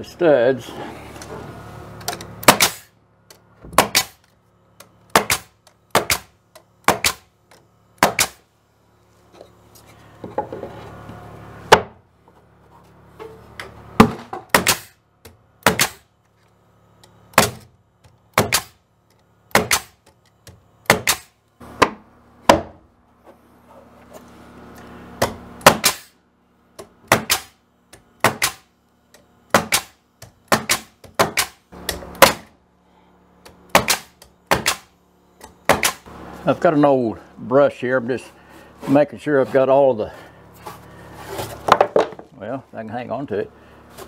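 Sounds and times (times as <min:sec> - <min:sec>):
nail gun shots: 0:02.4 - 0:02.9, 0:03.7 - 0:04.2, 0:05.1 - 0:07.3, 0:08.0 - 0:08.4, 0:14.0 - 0:15.0, 0:15.6 - 0:16.1, 0:17.3 - 0:17.7, 0:18.3 - 0:18.8, 0:19.5 - 0:20.0, 0:20.8 - 0:22.7, 0:25.2 - 0:26.2, 0:27.1 - 0:27.6, 0:28.2 - 0:28.7, 0:29.5 - 0:32.5, 0:33.7 - 0:34.9, 0:35.7 - 0:36.0.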